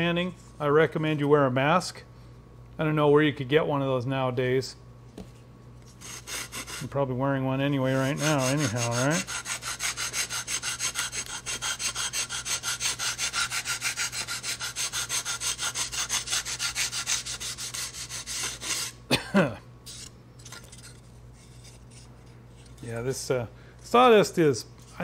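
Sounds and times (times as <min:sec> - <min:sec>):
belt sander grinding wood: 0:07.9 - 0:18.8.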